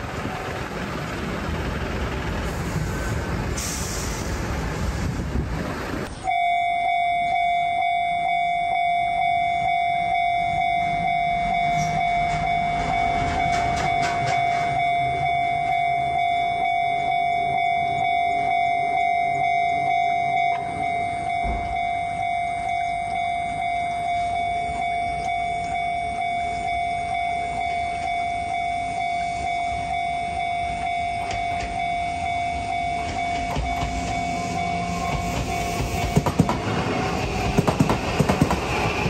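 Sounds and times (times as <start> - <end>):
steady rumbling noise: 0.0 - 6.2
level-crossing alarm ringing: 6.2 - 36.5.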